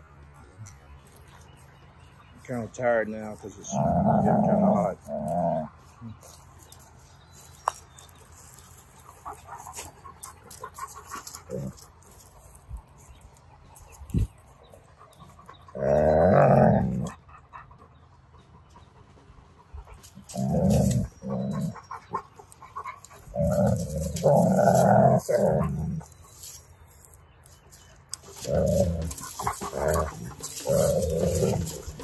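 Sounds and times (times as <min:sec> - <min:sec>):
dogs growling: 0:03.3 - 0:06.4, 0:09.0 - 0:12.1, 0:14.7 - 0:18.9, 0:19.6 - 0:26.4, 0:28.2 - 0:32.0.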